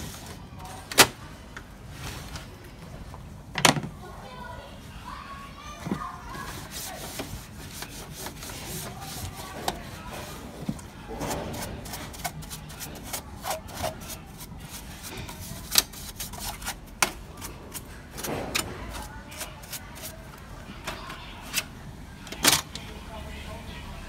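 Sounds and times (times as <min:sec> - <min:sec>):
cloth rubbing on plastic: 0:06.2 - 0:16.8.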